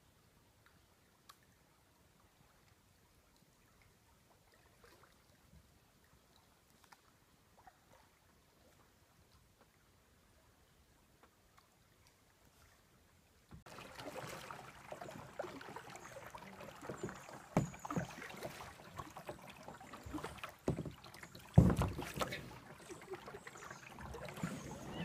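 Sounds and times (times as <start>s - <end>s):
paddle dipping in water: 2.3s - 25.0s
water splashing: 13.6s - 25.0s
knocks against plastic hull: 21.6s - 22.4s.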